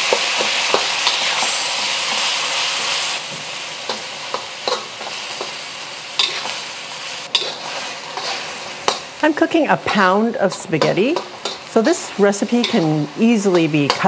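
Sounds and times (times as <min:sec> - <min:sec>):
meat sizzling in a wok: 0:00.0 - 0:14.0.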